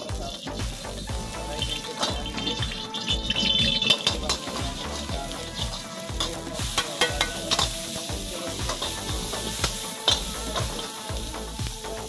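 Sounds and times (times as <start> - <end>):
garlic sizzling in hot oil: 0.0 - 12.0
vegetables frying in wok: 0.0 - 12.0
metal ladle clinking against pan: 6.2 - 7.8.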